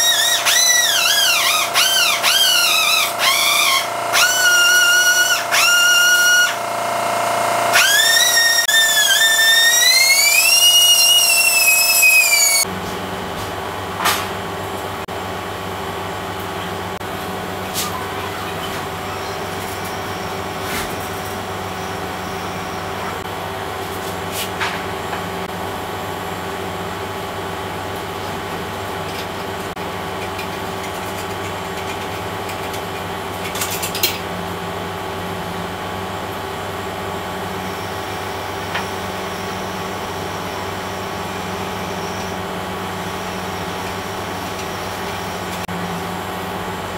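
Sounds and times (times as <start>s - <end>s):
die grinder whining: 0.0s - 12.7s
steady machine hum: 0.0s - 46.9s.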